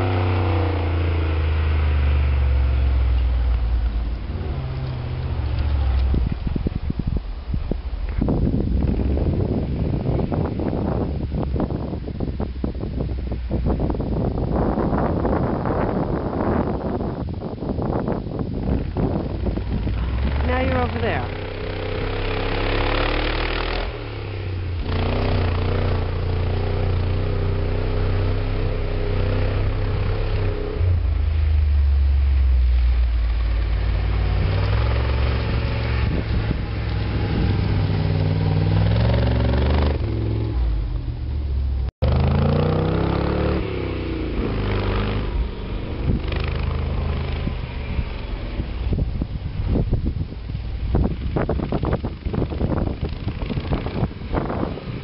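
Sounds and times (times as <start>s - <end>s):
truck engine working hard: 0.0s - 10.7s.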